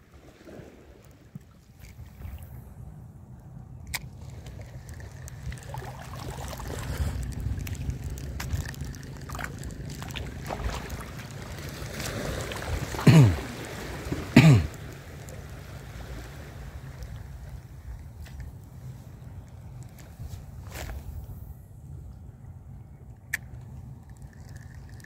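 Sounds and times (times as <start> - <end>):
water lapping: 0.0 - 2.8, 3.9 - 21.3
wind: 0.0 - 25.0
throat-clearing sounds: 13.0 - 13.5, 14.3 - 14.8.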